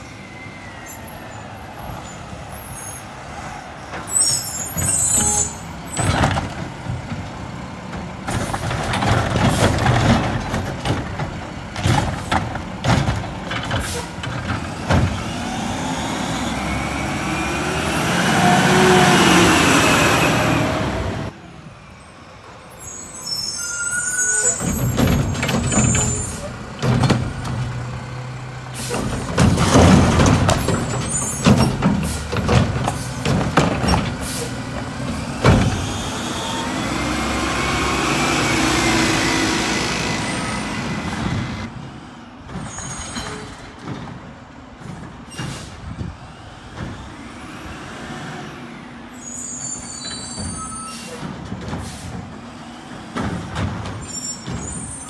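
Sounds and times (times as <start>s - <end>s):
cart banging against hopper: 5.9s - 15.4s, 24.4s - 28.0s, 28.8s - 36.1s, 50.3s - 55.0s
garbage truck engine revving: 6.1s - 21.4s, 24.5s - 41.8s.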